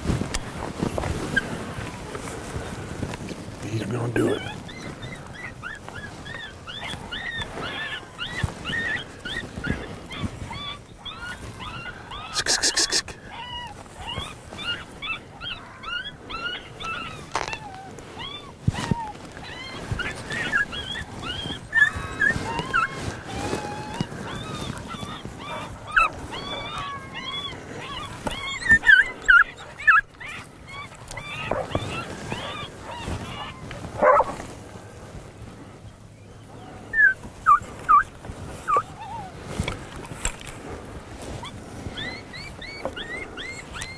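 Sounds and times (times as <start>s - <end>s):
dog whining: 3.7s - 34.4s, 36.9s - 39.6s, 41.2s - 43.9s
coyote yips: 4.2s - 34.4s, 36.9s - 39.3s, 41.4s - 43.9s
dog yelping: 4.2s - 34.5s, 36.9s - 39.5s, 41.2s - 43.9s
dog bark: 34.0s - 34.4s.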